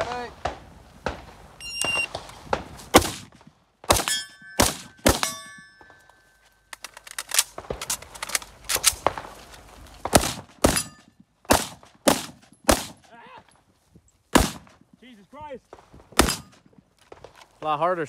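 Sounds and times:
rifle firing single shots: 0:00.0 - 0:06.1, 0:06.7 - 0:13.1, 0:14.3 - 0:14.8, 0:15.7 - 0:17.4
steel targets ringing: 0:04.0 - 0:06.4
fainter gunshot cracks: 0:14.3 - 0:14.7.

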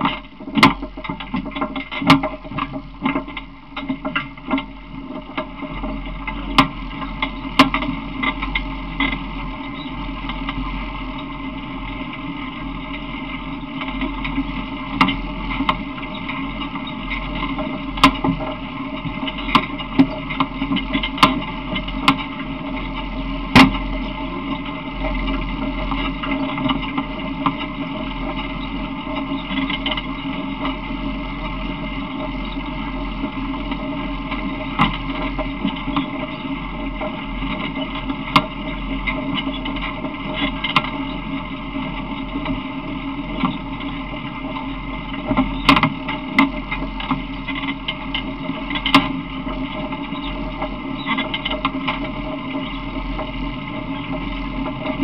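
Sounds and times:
vehicle rumbling and rattling: 0:00.0 - 0:55.0
sharp knocks and clicks: 0:45.2 - 0:52.8.

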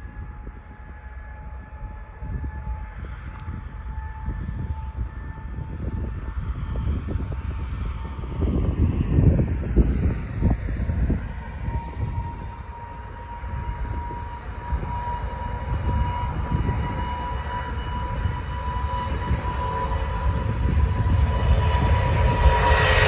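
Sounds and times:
jet engines at takeoff: 0:00.0 - 0:23.0.

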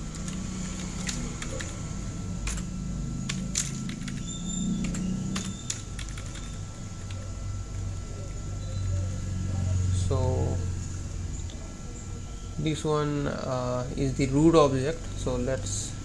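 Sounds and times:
low steady hum: 0:00.0 - 0:16.0
keyboard keystrokes: 0:00.1 - 0:01.8, 0:03.3 - 0:07.2.

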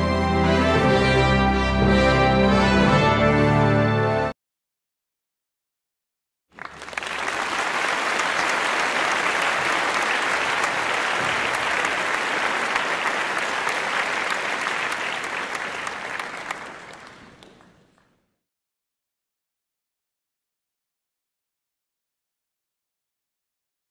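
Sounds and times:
crowd applauding: 0:06.5 - 0:18.2.

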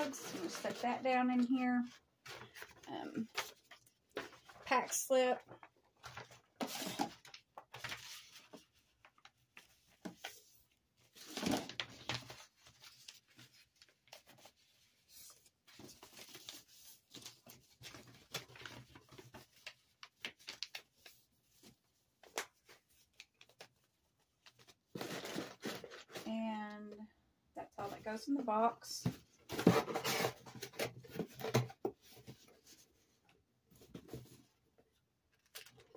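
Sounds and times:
paper rustling: 0:05.5 - 0:26.3.

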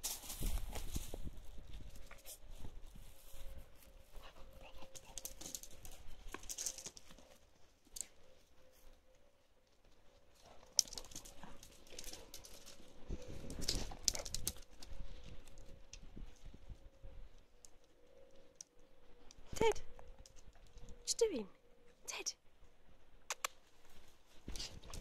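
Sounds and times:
paws scuffling on grass and paving: 0:00.0 - 0:16.8, 0:23.7 - 0:25.0.

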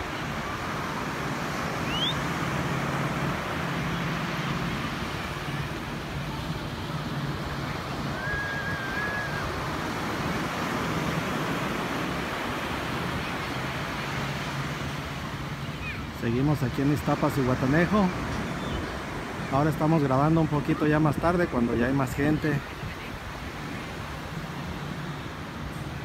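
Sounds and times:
ocean surf on beach: 0:00.0 - 0:26.0
short rising chirp: 0:01.8 - 0:02.2.

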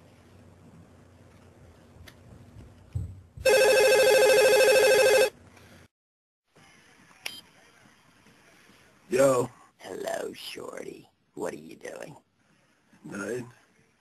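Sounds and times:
warbling electronic telephone ring: 0:03.4 - 0:05.3.

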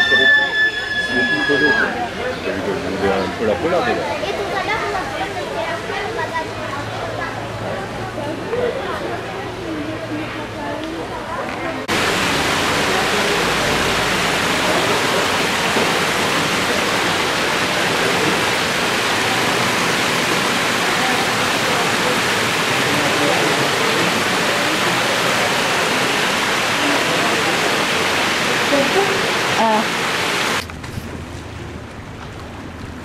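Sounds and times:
fountain water splashing into pond: 0:11.9 - 0:30.7.

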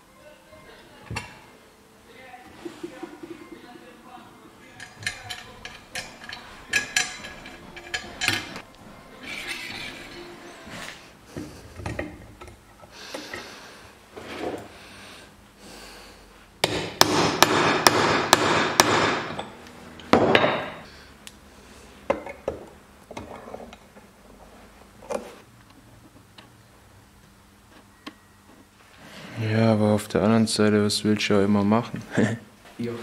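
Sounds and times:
metal tools clinking: 0:04.6 - 0:08.7.

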